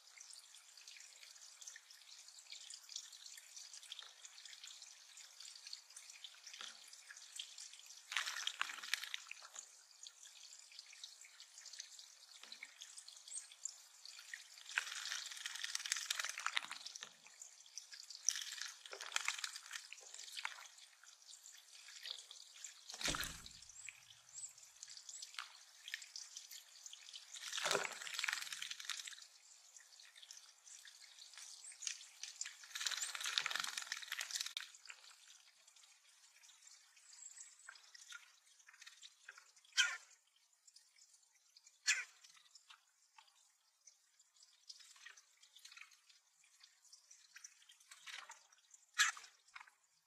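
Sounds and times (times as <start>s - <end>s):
water dripping and trickling: 0.0s - 50.0s
birds splashing in water: 8.0s - 9.6s, 14.2s - 17.2s, 18.0s - 21.0s, 24.7s - 29.3s, 30.7s - 35.4s.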